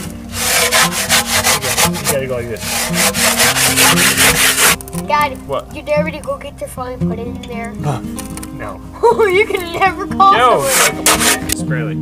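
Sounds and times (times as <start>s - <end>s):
spade scraping and chopping dirt: 0.0s - 4.9s, 10.6s - 11.6s
background music with steady beat: 0.0s - 12.0s.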